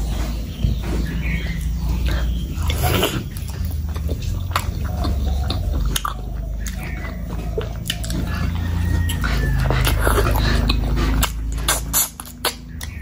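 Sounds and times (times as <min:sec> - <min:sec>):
person chewing food: 0:01.0 - 0:13.0
wet smacking: 0:02.7 - 0:13.0.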